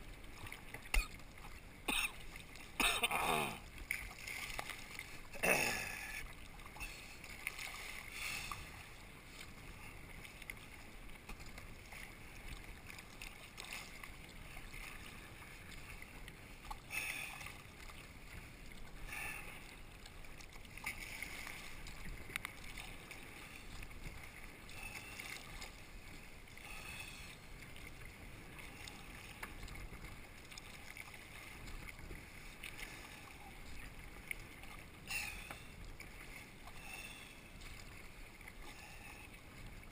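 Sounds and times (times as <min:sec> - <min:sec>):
kayak paddle splashing: 0:00.0 - 0:39.9
water washing along hull: 0:00.0 - 0:39.9.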